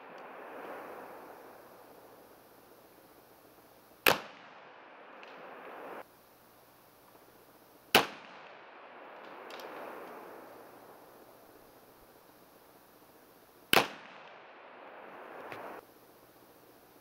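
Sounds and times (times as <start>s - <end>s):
faint click: 0.1s - 0.3s, 15.4s - 15.7s.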